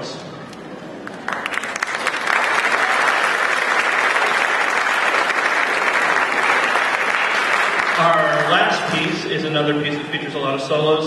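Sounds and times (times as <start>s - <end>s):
audience applauding: 1.0s - 9.4s.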